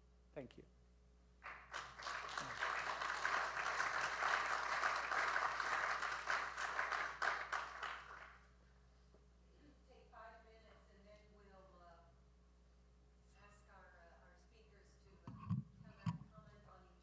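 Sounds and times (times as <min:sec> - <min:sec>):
audience applauding: 0:01.4 - 0:08.4.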